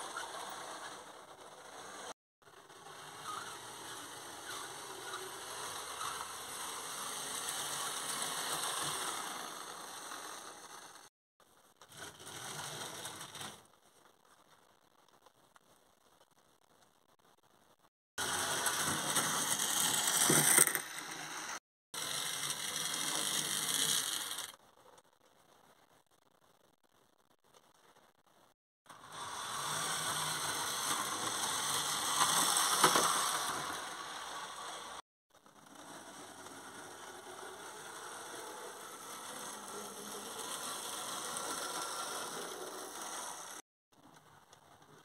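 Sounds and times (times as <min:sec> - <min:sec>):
model steam locomotive hissing: 0:02.6 - 0:11.0, 0:29.0 - 0:35.0, 0:35.7 - 0:43.6.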